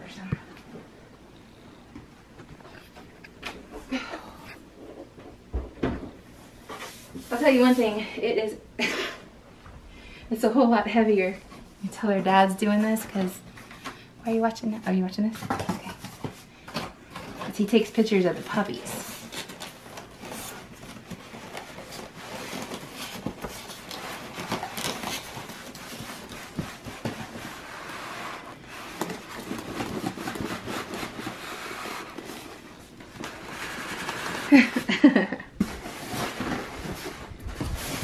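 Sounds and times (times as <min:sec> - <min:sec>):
styrofoam scraping cardboard: 0:17.6 - 0:34.8.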